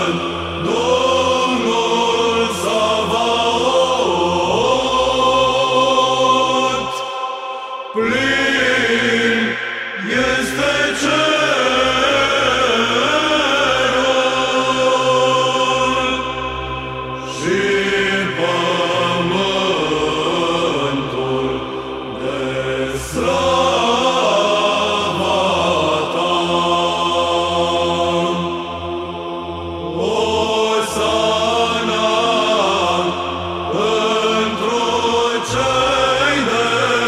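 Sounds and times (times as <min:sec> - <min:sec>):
choir chanting: 0:00.0 - 0:37.0
held vocal drone: 0:00.0 - 0:37.0.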